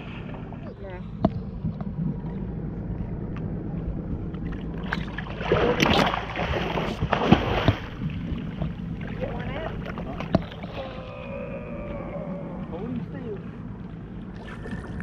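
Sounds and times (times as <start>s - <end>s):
boat engine idling: 0.0s - 15.0s
water against hull: 0.0s - 15.0s
water splashing: 4.4s - 15.0s.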